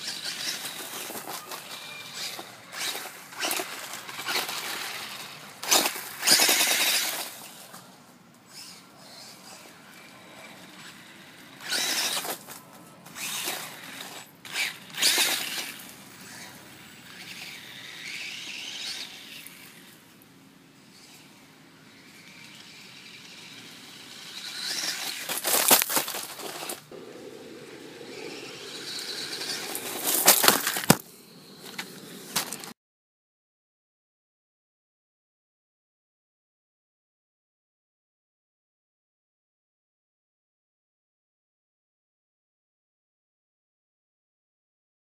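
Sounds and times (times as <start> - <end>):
rc car motor and tyres on gravel: 0.0 - 32.8.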